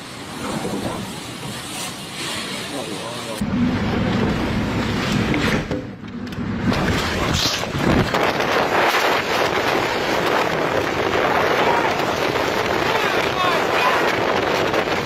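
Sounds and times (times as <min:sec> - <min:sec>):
strong wind buffeting microphone: 0:06.4 - 0:15.0.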